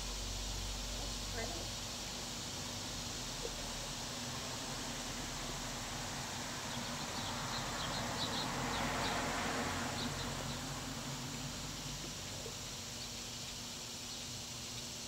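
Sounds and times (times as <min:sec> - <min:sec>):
soft hiss: 0:00.0 - 0:09.0
outdoor background noise: 0:00.0 - 0:15.0.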